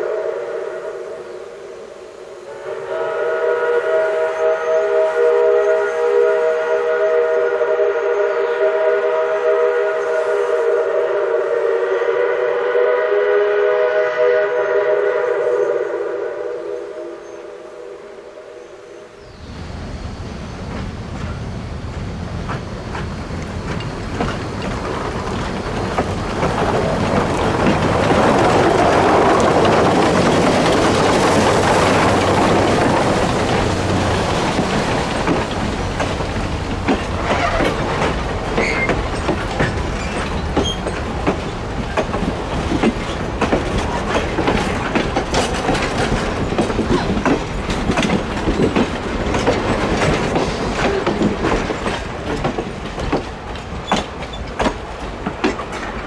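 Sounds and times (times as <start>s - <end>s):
steam locomotive running: 0.0s - 56.0s.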